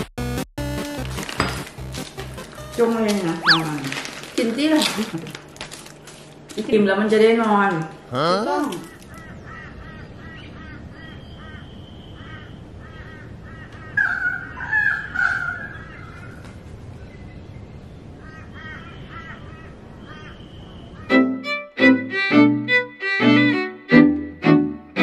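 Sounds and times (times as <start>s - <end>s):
birds chirping: 3.3s - 3.9s, 8.0s - 21.1s
harsh bird calls: 3.4s - 3.8s, 8.1s - 16.4s, 18.0s - 21.1s.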